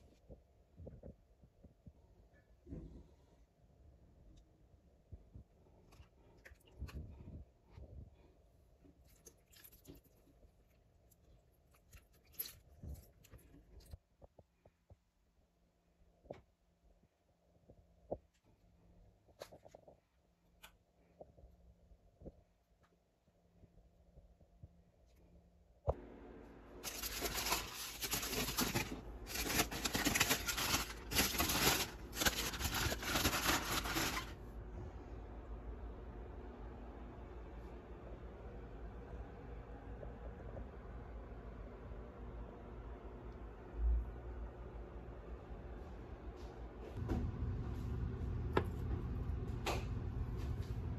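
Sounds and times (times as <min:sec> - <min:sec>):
wet handling sounds: 0:08.8 - 0:14.0
aluminium foil crinkling: 0:09.0 - 0:13.9, 0:26.8 - 0:34.4.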